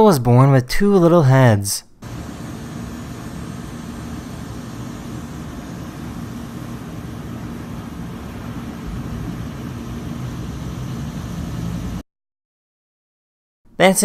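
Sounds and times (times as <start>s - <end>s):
faint hum: 1.9s - 12.0s
low rumbling background noise: 2.0s - 12.0s.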